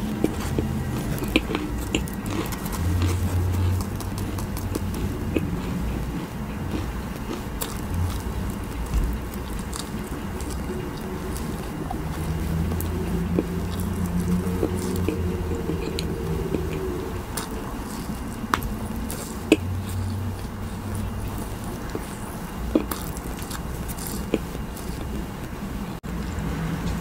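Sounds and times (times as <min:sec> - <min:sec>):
chewing gummy candies: 0:00.0 - 0:25.5
mouth clicks and smacks: 0:00.1 - 0:05.9.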